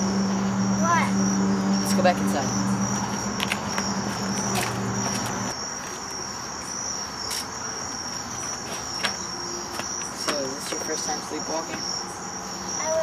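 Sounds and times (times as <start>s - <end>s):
low steady hum: 0.0s - 5.5s
crickets chirping: 0.0s - 13.0s.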